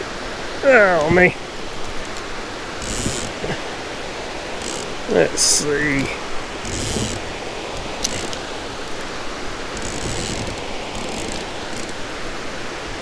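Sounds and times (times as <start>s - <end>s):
background hiss: 0.0s - 13.0s
fishing reel clicking and whirring: 2.8s - 3.4s, 4.6s - 5.2s, 5.8s - 12.2s.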